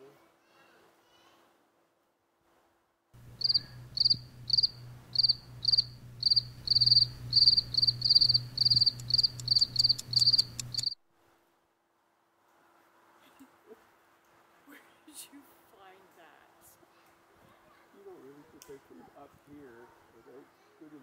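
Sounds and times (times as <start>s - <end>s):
cricket chirping: 3.2s - 11.0s
low steady hum: 3.2s - 11.0s.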